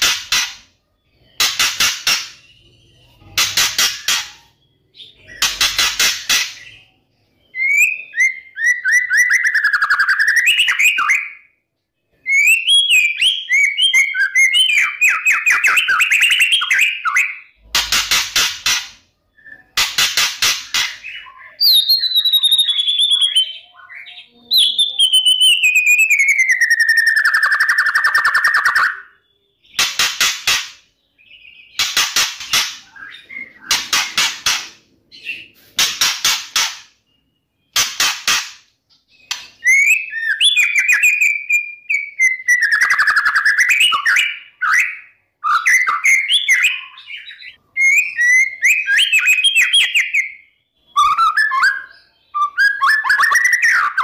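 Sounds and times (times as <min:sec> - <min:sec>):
bird whistling: 0:39.2 - 0:54.0.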